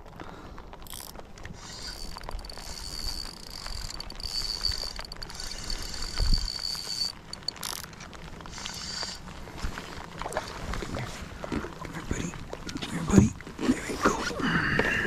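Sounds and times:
fishing reel whirring: 0.8 - 9.3.

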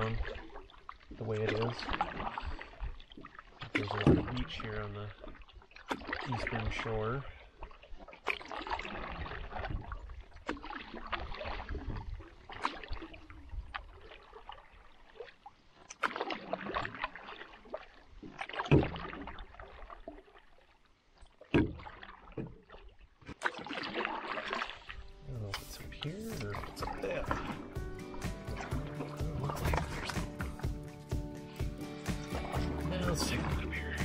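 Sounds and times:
paddle splashing water: 0.0 - 34.0
sharp knocks on canoe: 26.5 - 33.9.

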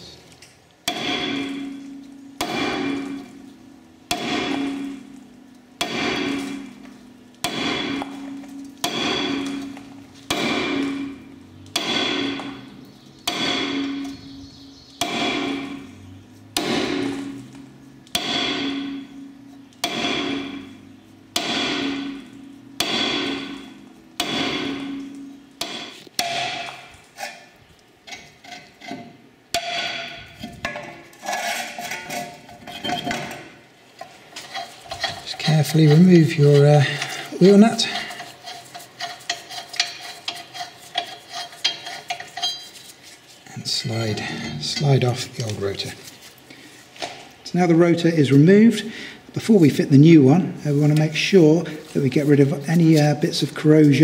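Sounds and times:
hammer striking brake disc: 0.8 - 27.5, 28.1 - 43.2.

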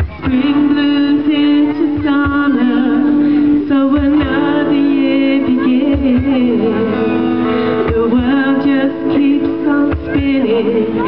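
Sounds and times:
acoustic guitar: 0.0 - 11.0
soft low cajon beats: 0.0 - 11.0
woman singing: 0.0 - 11.0.

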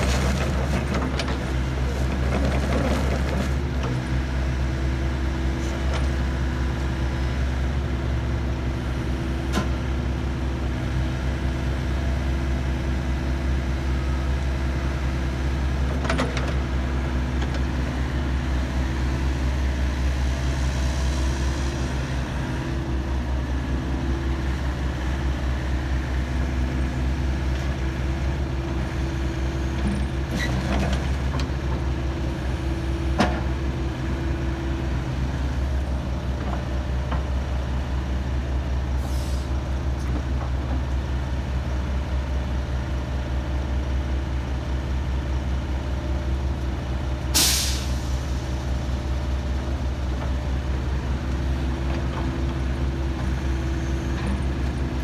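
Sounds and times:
excavator diesel engine running: 0.0 - 55.0
short hiss: 47.4 - 48.2.

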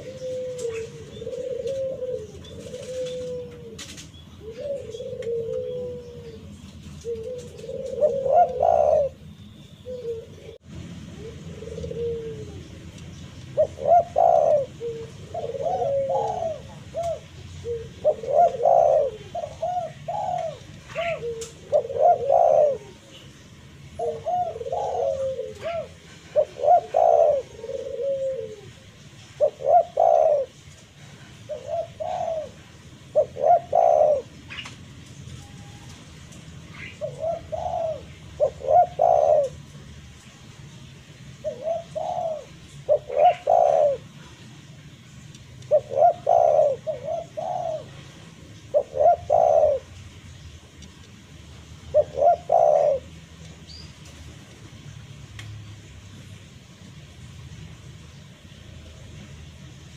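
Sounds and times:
dove cooing: 0.0 - 36.0, 36.6 - 39.9, 41.4 - 44.4, 45.7 - 50.0, 51.8 - 53.4.

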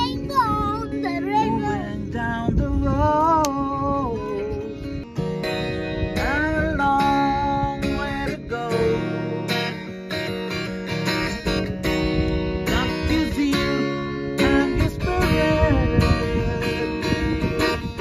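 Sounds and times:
acoustic guitar strumming: 0.0 - 18.0
man singing: 0.5 - 5.1, 6.0 - 9.9, 12.6 - 18.0.

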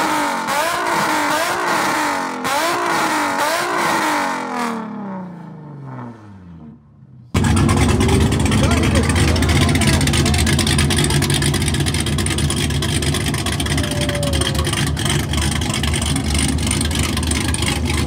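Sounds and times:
car engine idling: 5.3 - 18.0.

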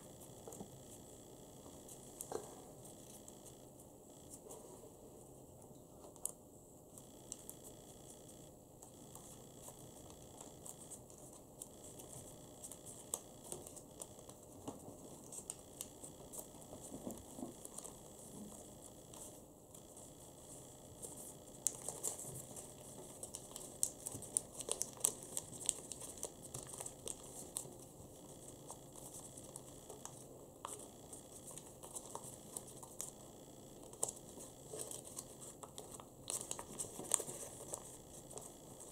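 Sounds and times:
paper crinkling and rustling: 21.0 - 33.2, 33.8 - 38.9.

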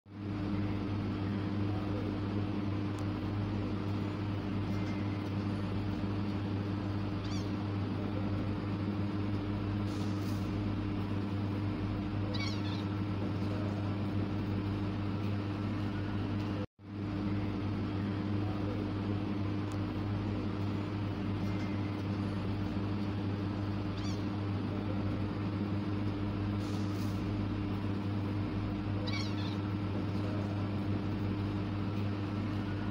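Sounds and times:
steady low hum: 0.1 - 32.9
kitten mewing: 12.3 - 12.9, 29.0 - 29.8.

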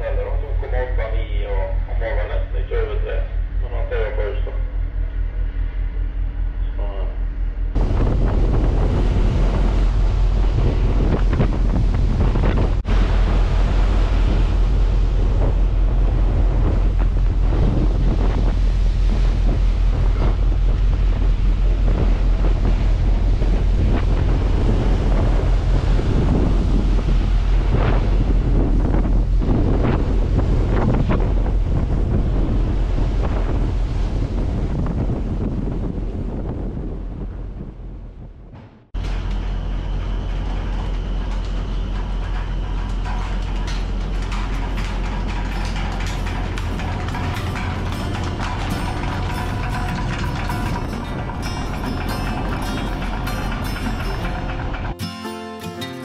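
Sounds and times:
wind buffeting microphone: 0.0 - 55.0
winch machinery low hum: 0.0 - 56.0
water churning and splashing: 7.8 - 37.3, 39.0 - 55.2
clicks and knocks: 40.4 - 55.1.

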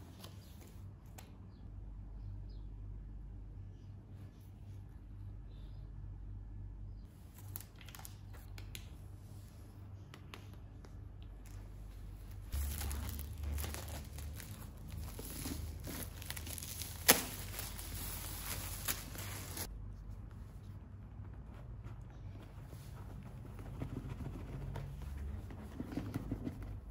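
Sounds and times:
plastic shrink wrap crinkling: 7.2 - 8.8, 12.4 - 19.7.

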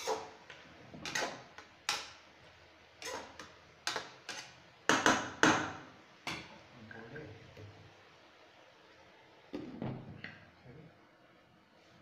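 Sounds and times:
metal spoon scraping a wok: 1.0 - 2.1, 3.0 - 4.6.

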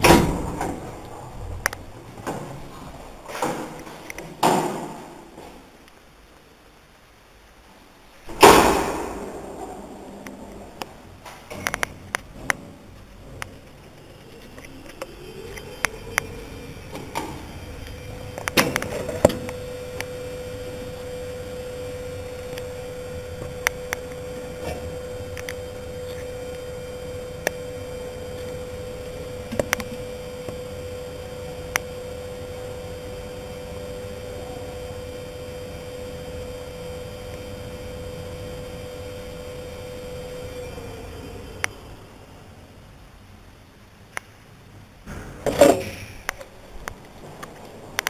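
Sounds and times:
lift drive high-pitched hum: 0.0 - 48.0.

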